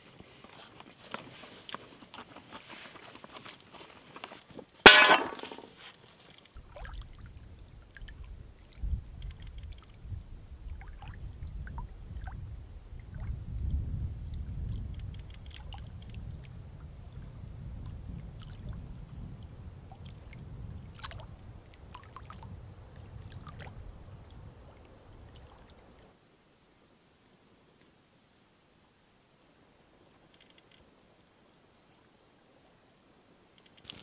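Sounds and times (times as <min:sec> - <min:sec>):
small waves lapping: 0:04.8 - 0:13.4, 0:18.2 - 0:26.2
wind rumble on microphone: 0:06.6 - 0:26.1.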